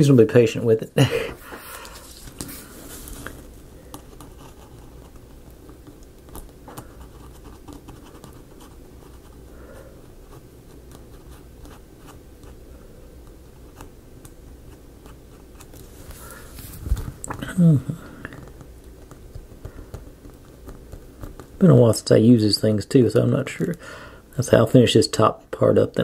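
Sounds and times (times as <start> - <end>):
paint pen scratching on wood: 3.9 - 12.8, 14.6 - 15.8.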